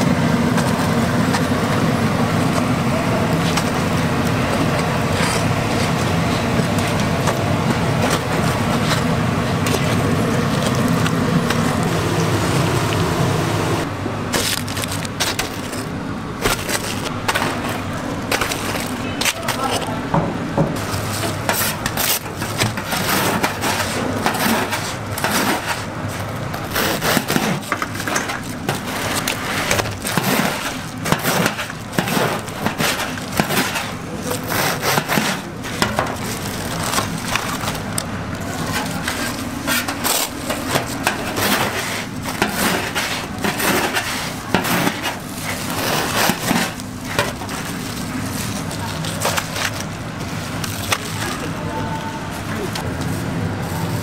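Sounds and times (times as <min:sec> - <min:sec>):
low hum: 0:00.0 - 0:19.2.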